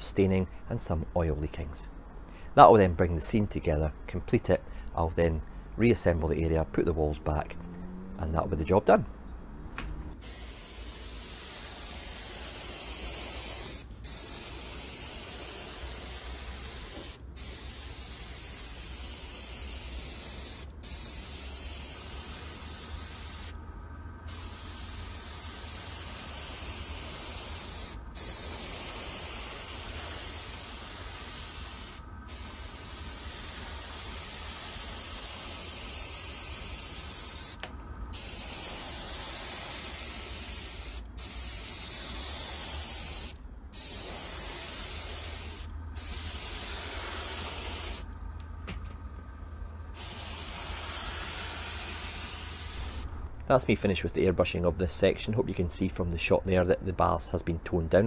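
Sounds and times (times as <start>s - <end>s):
airbrush spraying hiss: 10.2s - 23.6s, 24.3s - 48.1s, 50.0s - 53.1s.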